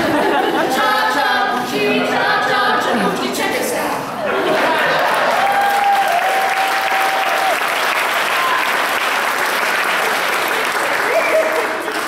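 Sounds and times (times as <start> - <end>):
audience applauding: 4.5 - 12.0
person cheering: 5.4 - 7.6.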